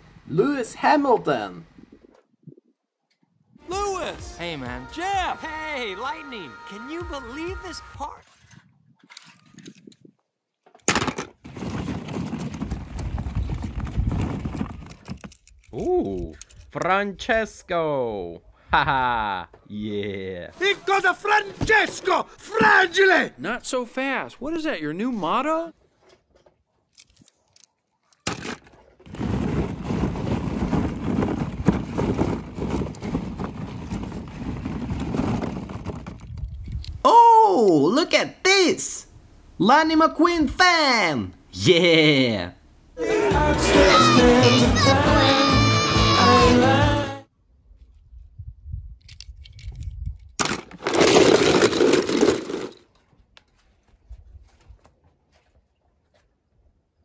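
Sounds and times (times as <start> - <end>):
plastic balls rattling: 28.2 - 37.0, 49.6 - 53.0.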